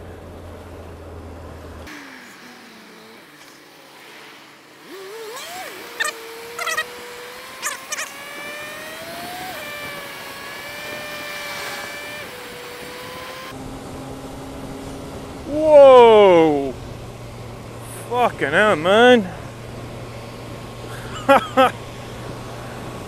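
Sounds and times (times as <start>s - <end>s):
motorcycle engine running: 13.4s - 23.0s.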